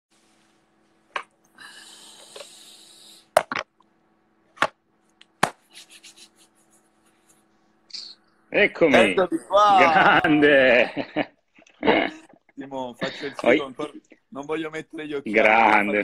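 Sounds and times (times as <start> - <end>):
faint steady hum: 0.2 - 16.0
sharp hand claps: 5.2 - 5.8.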